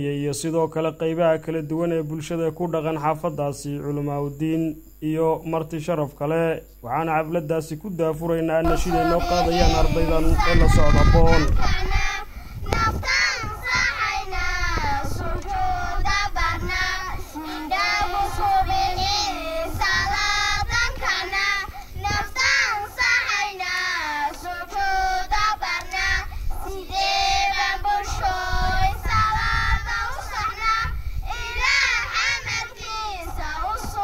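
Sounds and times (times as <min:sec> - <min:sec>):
girls singing together: 0:08.6 - 0:34.0.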